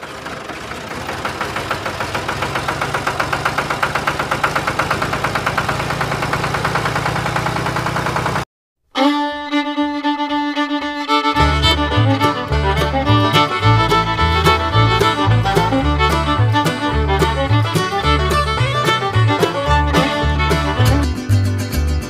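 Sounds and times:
tractor engine running: 0.0 - 8.5, 11.3 - 22.0
fiddle music: 8.9 - 22.0.

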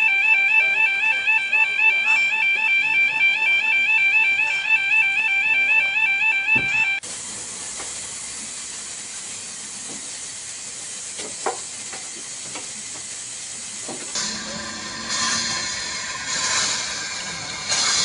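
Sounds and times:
high ringing sound: 0.0 - 7.0
steam hissing: 7.0 - 18.0.

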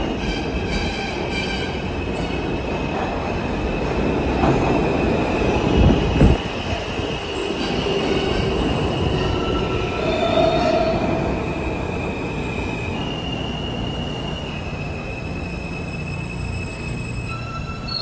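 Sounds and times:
high squealing wheels: 0.0 - 2.7, 4.8 - 18.0
subway train rumble: 0.0 - 18.0.

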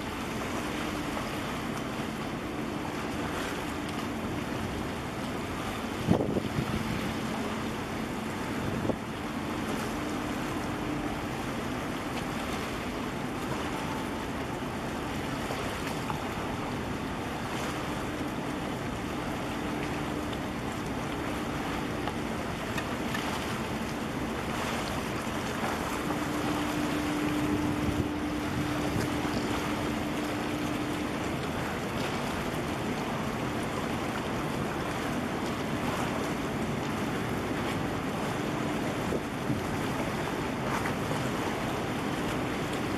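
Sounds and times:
harbour water washing: 0.0 - 42.9
wind on microphone: 5.9 - 7.1, 8.4 - 9.1, 26.4 - 30.8.

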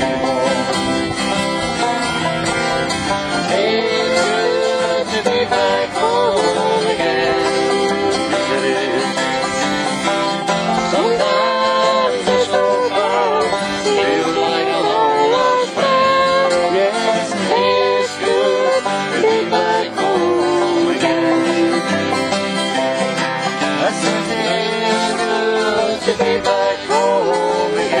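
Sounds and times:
acoustic guitar strumming: 0.0 - 28.0
man singing: 3.4 - 9.3, 10.9 - 21.9, 23.8 - 28.0.

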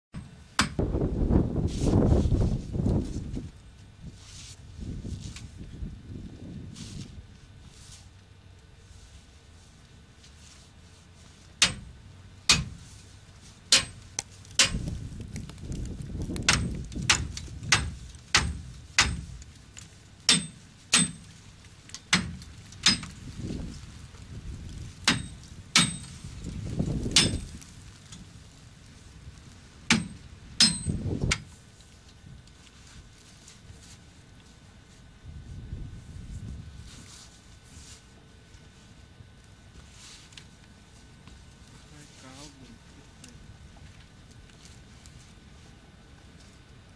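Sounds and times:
low crunching rumbles: 11.2 - 37.1
ice cracking and knocking: 14.2 - 17.5.

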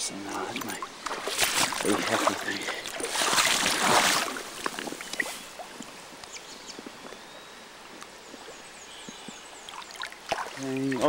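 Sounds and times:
water splashing and dripping: 0.0 - 5.9, 9.6 - 11.0
river hiss: 0.1 - 6.2.

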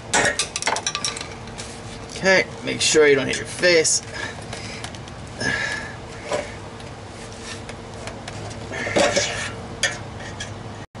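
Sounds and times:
metallic scrapes and knocks: 8.9 - 10.6.

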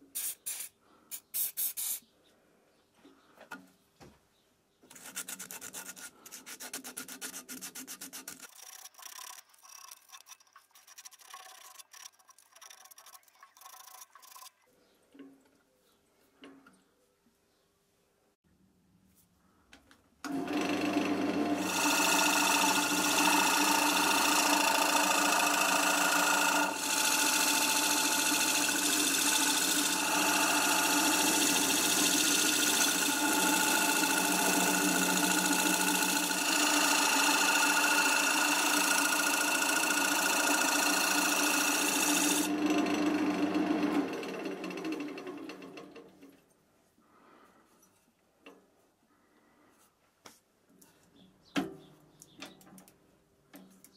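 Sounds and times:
turning tool cutting wood: 4.9 - 14.6, 20.3 - 46.2
wood lathe motor humming: 20.3 - 46.2.

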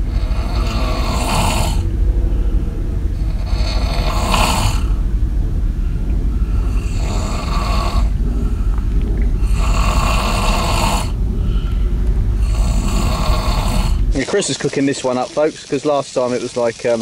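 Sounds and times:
person snoring loudly: 0.0 - 1.8, 3.2 - 5.0, 6.5 - 8.7, 9.4 - 11.2, 12.4 - 14.1
steady low rumble: 0.0 - 17.0.

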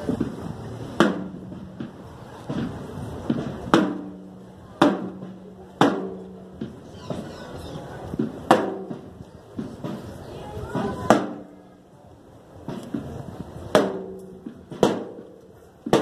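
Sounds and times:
loud drum strikes: 0.1 - 7.3, 8.2 - 10.1, 10.7 - 11.5, 13.7 - 15.3.

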